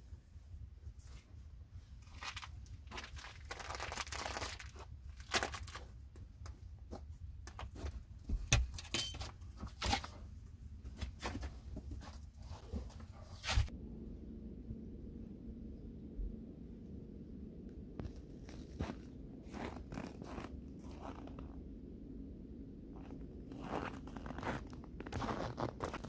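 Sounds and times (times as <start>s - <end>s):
plastic bag and jacket rustling: 2.0s - 6.0s, 18.0s - 21.6s, 23.0s - 26.0s.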